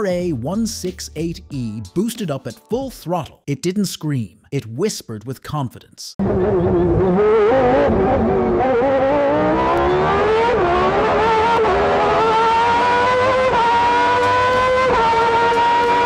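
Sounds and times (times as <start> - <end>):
race car engine accelerating: 6.2 - 16.0.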